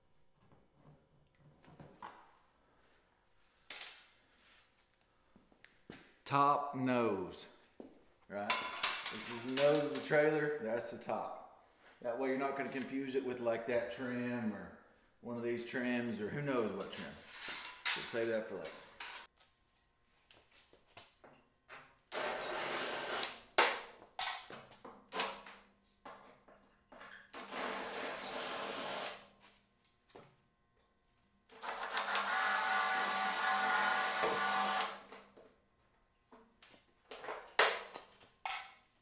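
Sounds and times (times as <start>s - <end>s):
cordless drill drilling rivets: 31.5s - 35.1s.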